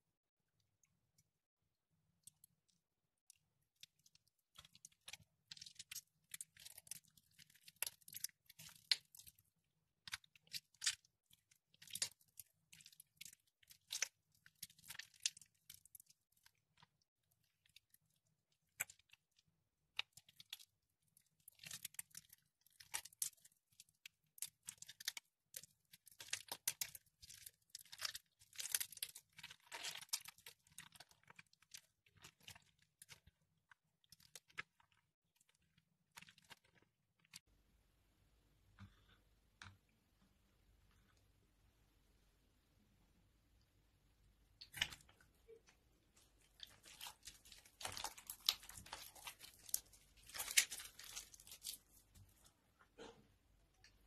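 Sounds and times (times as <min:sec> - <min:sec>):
wet soap crunching by hand: 0:02.2 - 0:37.5, 0:44.6 - 0:52.6.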